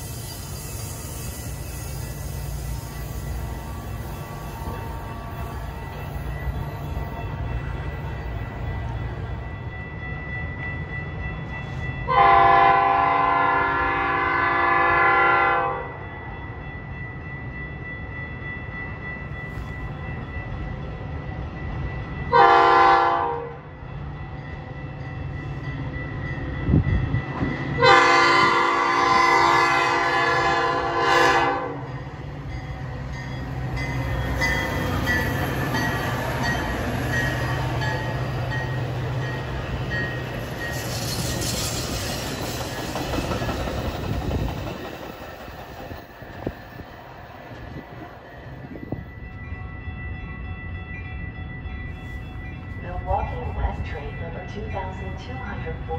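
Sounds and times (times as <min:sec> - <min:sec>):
train wheels rumbling on rails: 0:00.0 - 0:55.9
train horn blasts: 0:03.3 - 0:05.9, 0:12.1 - 0:16.0, 0:22.3 - 0:23.7, 0:27.7 - 0:31.9.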